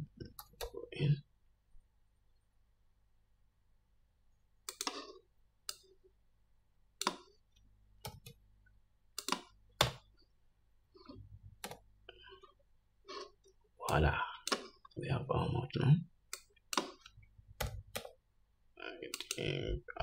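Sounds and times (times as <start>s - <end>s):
mouse and keyboard clicks: 4.7s - 5.1s, 9.2s - 10.0s, 16.3s - 18.2s.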